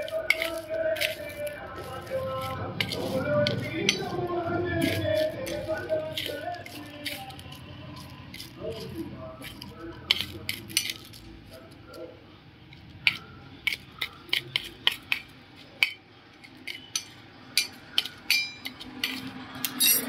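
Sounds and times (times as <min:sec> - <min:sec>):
metal spoon scraping steel bowl: 0:00.0 - 0:11.3, 0:13.1 - 0:20.0.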